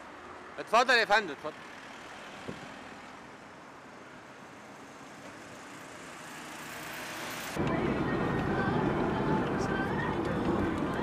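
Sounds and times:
street traffic hiss and rumble: 0.0s - 11.0s.

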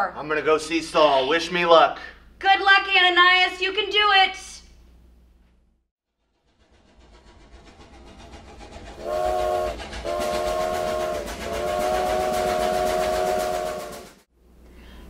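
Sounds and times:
steam locomotive chugging: 6.2s - 14.3s
steam whistle blowing: 9.0s - 14.3s.

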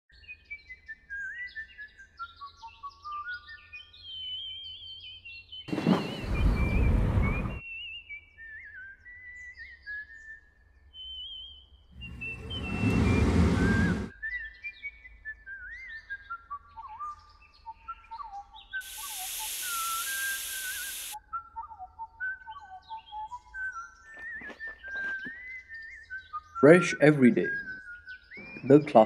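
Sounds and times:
bird-like whistled trills: 3.7s - 26.9s, 27.5s - 29.0s
loud whoosh: 12.0s - 14.1s
bright hissing swish: 18.8s - 21.2s.

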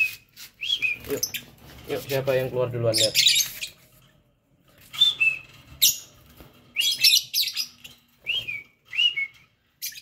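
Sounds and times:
lovebirds chirping: 0.0s - 10.0s.

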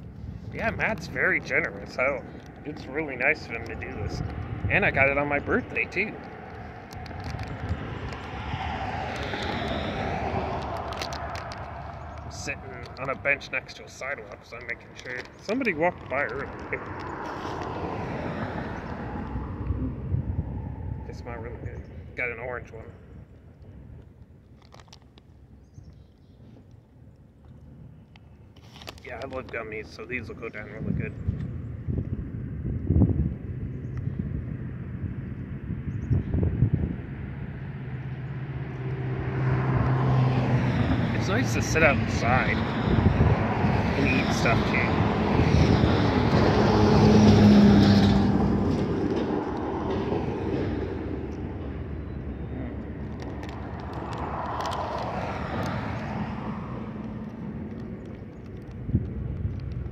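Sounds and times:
wind buffeting microphone: 0.0s - 24.3s, 29.2s - 59.9s
vehicle passing by: 0.5s - 22.8s, 35.5s - 59.9s.

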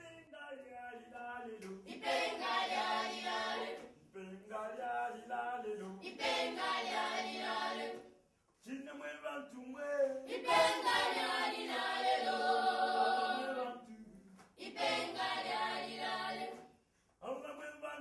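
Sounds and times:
choir singing: 1.9s - 3.8s, 6.0s - 8.1s, 10.3s - 13.8s, 14.6s - 16.6s.

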